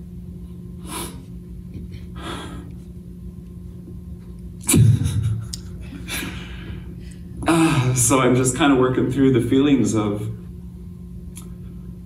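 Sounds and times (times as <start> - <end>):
steady low hum: 0.0 - 12.0
man breathing unsteadily: 2.0 - 2.8, 5.8 - 8.0.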